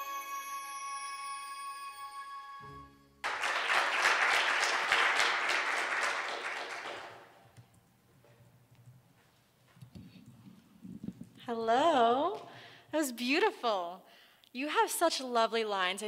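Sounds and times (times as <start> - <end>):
audience applauding: 3.2 - 7.5.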